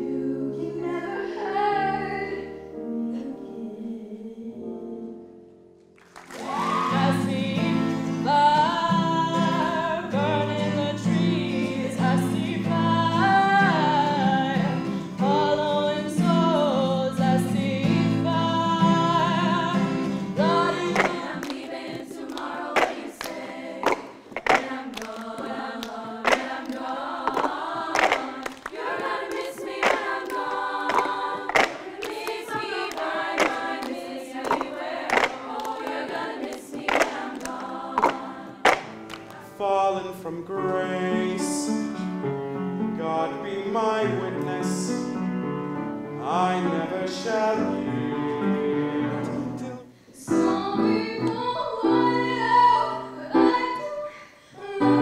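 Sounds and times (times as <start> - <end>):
girls choir singing: 0.0 - 2.6, 6.4 - 39.6, 50.2 - 55.0
woman singing: 0.0 - 5.1, 6.5 - 23.5, 50.2 - 55.0
piano: 0.0 - 55.0
acoustic guitar: 6.0 - 53.8
plastic cups tapped on floor: 20.9 - 21.2, 22.8 - 25.2, 26.3 - 26.6, 27.2 - 28.7, 29.8 - 30.1, 30.9 - 32.2, 34.4 - 35.5, 38.0 - 39.3.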